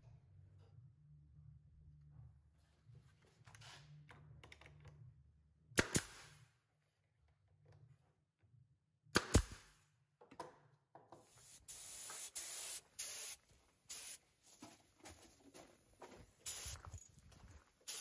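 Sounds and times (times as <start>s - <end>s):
pneumatic nailer cracks: 5.8s - 6.3s, 9.2s - 9.7s
spray gun hissing: 11.4s - 14.2s, 16.4s - 16.9s.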